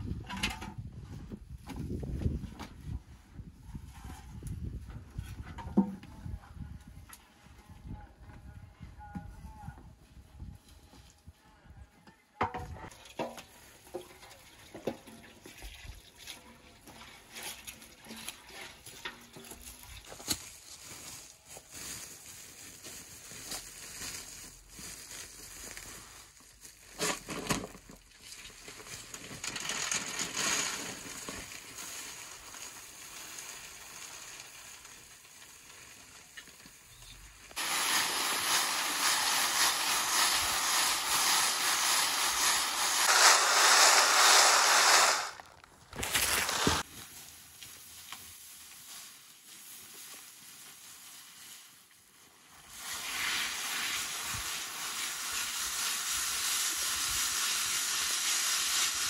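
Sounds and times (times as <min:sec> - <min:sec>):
dry berries rustling in a sieve: 0:17.1 - 0:36.9, 0:37.6 - 0:59.0
berries pouring from a cloth bag: 0:37.6 - 0:47.0.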